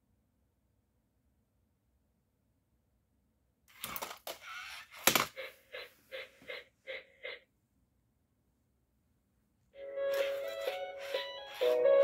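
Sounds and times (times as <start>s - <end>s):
toy robot knocking on tile floor: 3.7s - 5.4s
toy robot plastic clicks: 3.7s - 5.4s.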